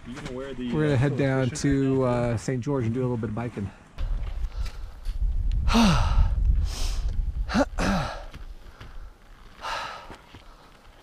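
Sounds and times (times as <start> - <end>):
low microphone rumble: 4.0 - 8.3
person breathing hard: 5.6 - 10.8.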